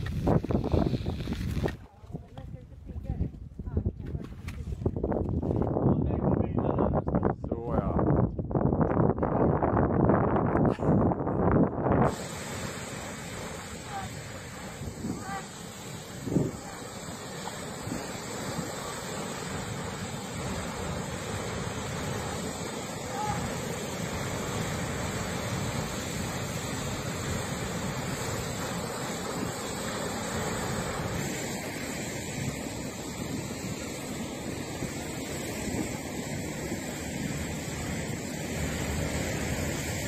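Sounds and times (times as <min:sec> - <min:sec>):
wind buffeting microphone: 0:00.0 - 0:40.0
ocean surf rushing: 0:12.1 - 0:40.0.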